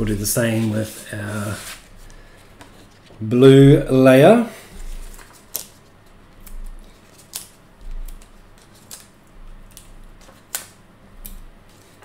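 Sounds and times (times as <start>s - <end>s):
paper handling: 4.7s - 12.0s.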